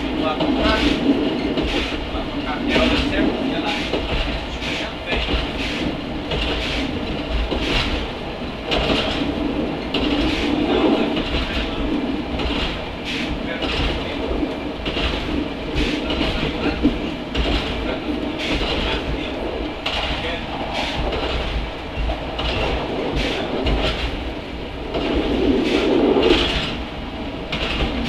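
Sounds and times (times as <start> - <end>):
wheels clicking over rails: 0.0 - 28.0.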